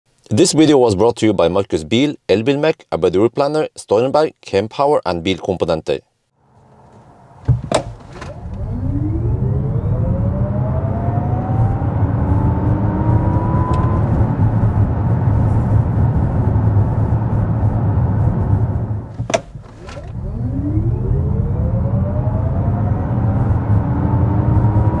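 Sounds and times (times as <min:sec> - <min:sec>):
tyre and road rumble: 0:06.6 - 0:08.6, 0:19.1 - 0:20.2
sharp knock: 0:07.5 - 0:08.4, 0:19.2 - 0:20.1
electric motor whine rising: 0:08.3 - 0:14.1, 0:20.0 - 0:25.0.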